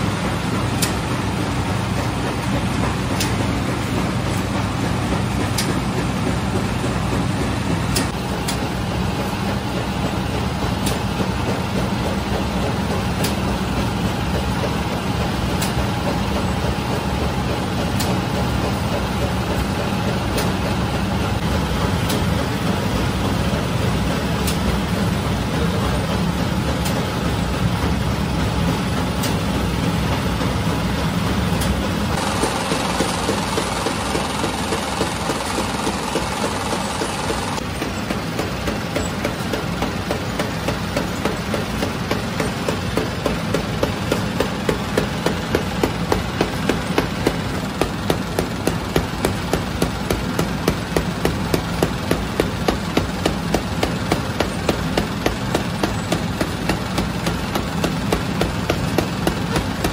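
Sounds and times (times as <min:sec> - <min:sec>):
bread machine humming: 0:00.0 - 0:59.9.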